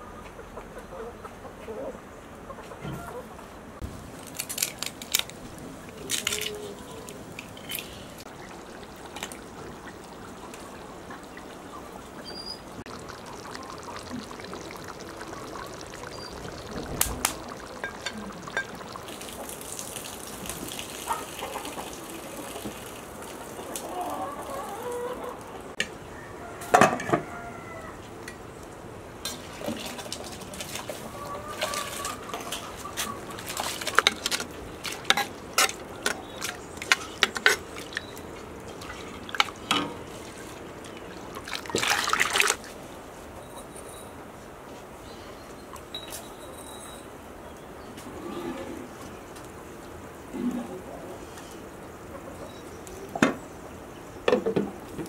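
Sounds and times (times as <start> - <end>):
hens clucking: 0.0 - 3.5, 6.2 - 20.1, 20.7 - 25.8, 30.7 - 42.5
water pouring from jug: 5.9 - 24.7, 29.4 - 42.7
metal pots and lids clinking: 17.5 - 19.0, 32.5 - 38.0.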